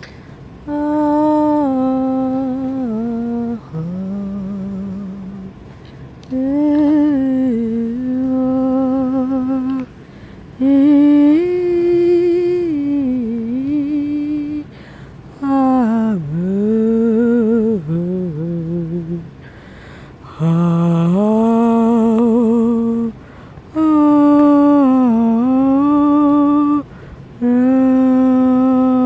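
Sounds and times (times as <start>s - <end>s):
person breathing: 0.0s - 0.6s, 9.9s - 10.6s, 14.7s - 15.3s, 19.4s - 20.4s, 23.2s - 23.7s, 26.9s - 27.4s
person humming: 0.0s - 5.6s, 6.2s - 10.0s, 10.6s - 14.7s, 15.4s - 19.3s, 20.2s - 29.0s.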